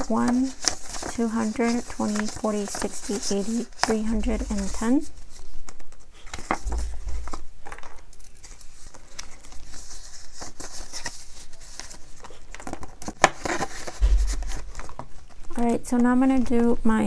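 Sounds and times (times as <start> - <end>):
paper rustling and crinkling: 0.0 - 15.4
low thump: 6.6 - 7.6, 14.0 - 15.0.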